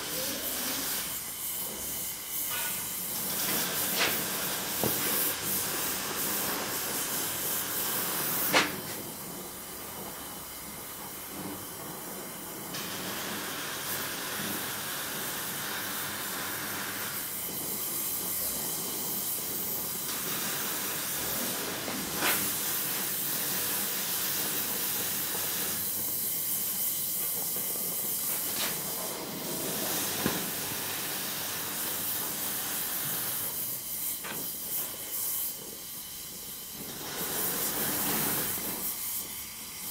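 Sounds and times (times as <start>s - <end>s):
gas torch flame hissing: 0.0s - 39.9s.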